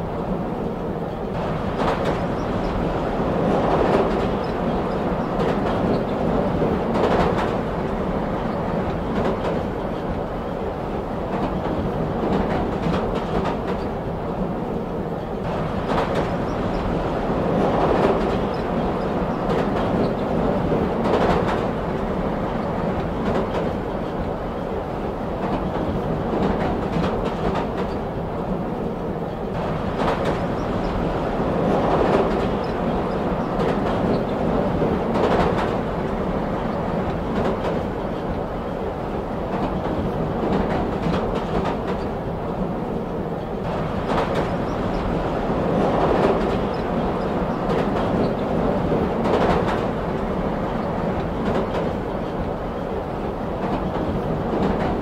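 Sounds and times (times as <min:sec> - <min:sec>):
rail joint clacks: 0:00.0 - 0:55.0
train rumbling on rails: 0:00.0 - 0:55.0.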